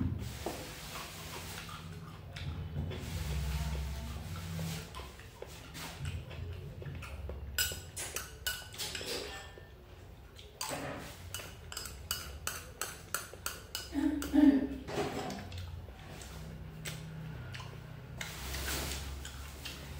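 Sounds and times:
metal spoon clinking on bowl: 7.6s - 9.7s, 11.3s - 14.4s.

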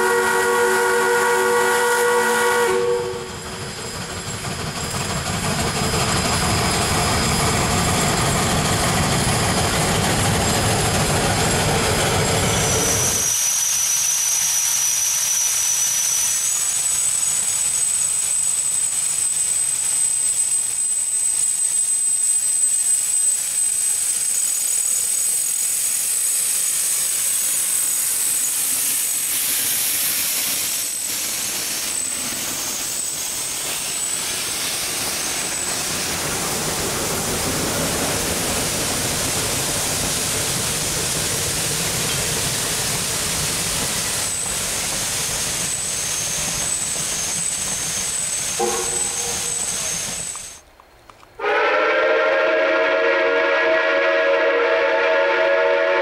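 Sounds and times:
steam hiss: 0.0s - 50.7s
rail cars clicking: 0.0s - 56.0s
steam locomotive rumbling: 0.0s - 56.0s
thin high tone: 45.8s - 50.6s.

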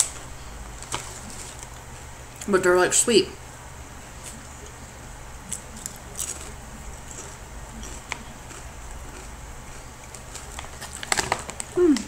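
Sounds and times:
chips crackling: 0.0s - 2.6s, 5.5s - 12.0s
low steady hum: 0.0s - 12.0s.

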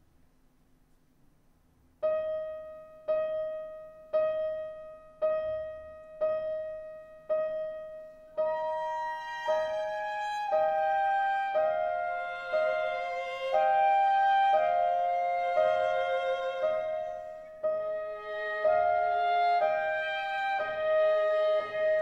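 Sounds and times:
violin holding notes: 8.4s - 22.0s.

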